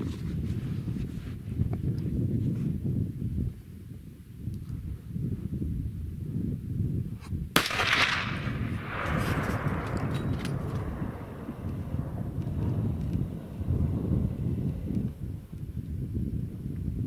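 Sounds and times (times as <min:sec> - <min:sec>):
rifle shot echoing: 0:07.6 - 0:14.9.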